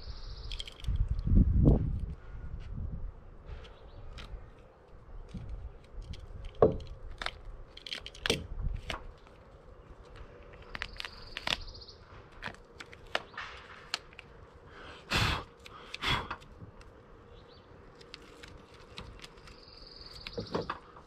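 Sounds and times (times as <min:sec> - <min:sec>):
tape backing peeled off: 0:03.6 - 0:14.6, 0:17.8 - 0:21.0.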